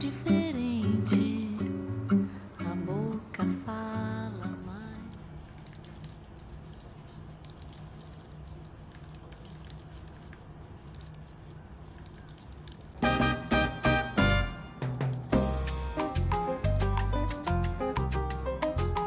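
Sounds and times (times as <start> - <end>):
loud music: 13.0 - 19.0.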